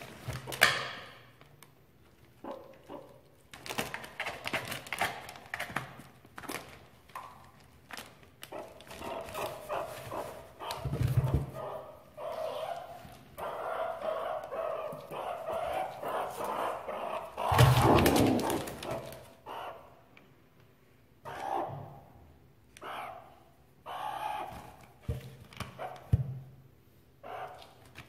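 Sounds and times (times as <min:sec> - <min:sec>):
plastic bags crinkling: 0:03.5 - 0:09.0
meerkat calls like small barks: 0:22.8 - 0:24.6.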